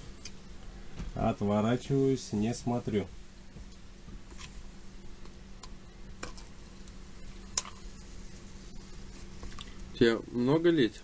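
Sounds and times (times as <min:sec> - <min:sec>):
room hum: 0:00.0 - 0:11.0.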